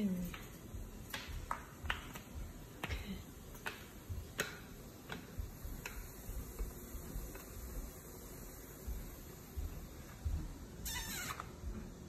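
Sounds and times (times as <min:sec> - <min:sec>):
sharp clicks and taps: 0:00.2 - 0:07.6.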